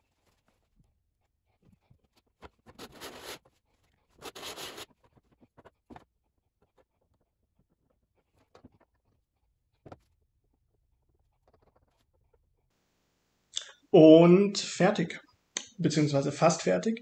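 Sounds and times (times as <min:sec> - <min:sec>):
short scratchy bursts: 0:04.2 - 0:04.8.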